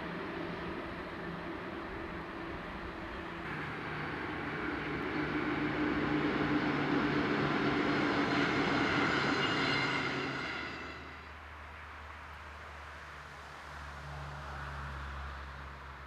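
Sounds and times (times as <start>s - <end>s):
passing vehicle engine drone: 0.0s - 10.4s.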